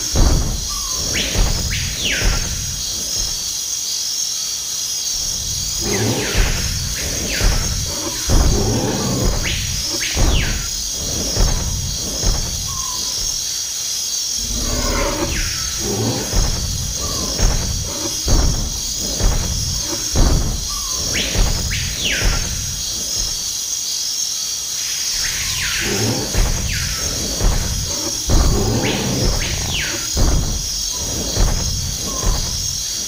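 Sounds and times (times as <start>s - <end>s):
heavy low thuds: 0.0s - 3.5s, 5.2s - 13.5s, 14.4s - 23.6s, 25.5s - 33.0s
insect chorus: 0.0s - 33.0s.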